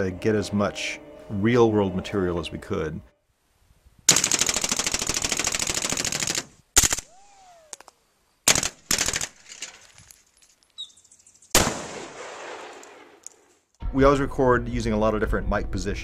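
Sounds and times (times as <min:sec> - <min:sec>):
automatic gunfire: 0:04.1 - 0:07.1, 0:08.5 - 0:09.4
single gunshots: 0:11.5 - 0:13.2.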